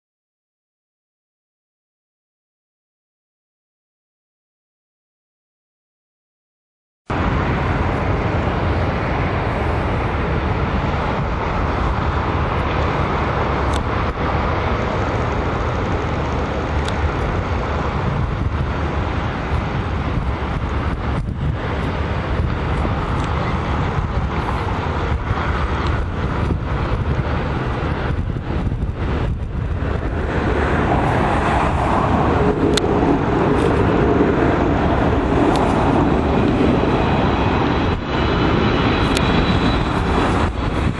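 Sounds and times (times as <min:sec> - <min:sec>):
jet engines on approach: 0:07.1 - 0:40.9
road traffic: 0:07.1 - 0:40.9.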